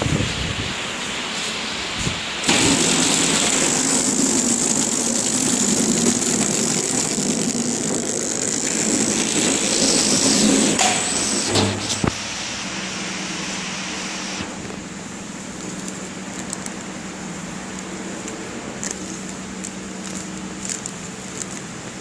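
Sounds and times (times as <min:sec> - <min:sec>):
rapid fine mechanical clicking: 0:02.4 - 0:11.0, 0:15.5 - 0:22.0
thin high whine: 0:02.4 - 0:15.3
packaging machine motor hum: 0:02.4 - 0:22.0.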